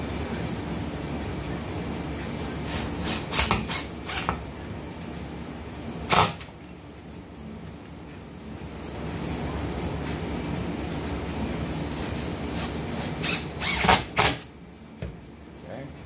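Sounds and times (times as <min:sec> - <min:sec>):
low running hum: 0:00.0 - 0:16.0
cordless drill driving screws: 0:13.0 - 0:14.4.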